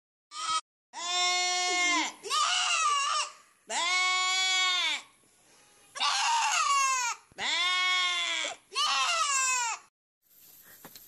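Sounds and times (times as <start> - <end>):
young goat bleating: 0.3 - 5.1, 6.0 - 9.9.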